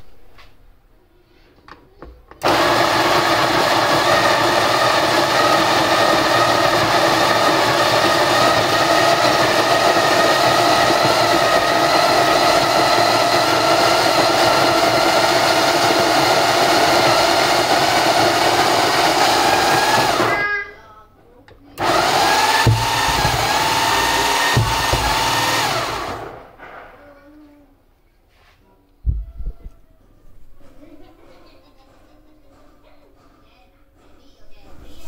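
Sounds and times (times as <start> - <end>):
electric coffee grinder grinding: 2.4 - 20.4, 21.8 - 26.5.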